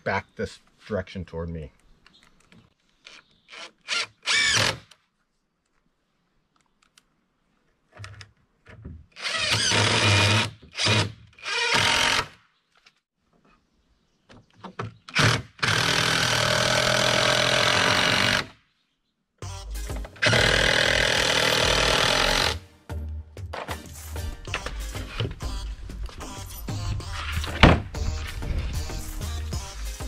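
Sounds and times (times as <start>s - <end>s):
impact driver driving screws: 3.1s - 5.0s, 9.2s - 12.3s, 20.2s - 22.6s.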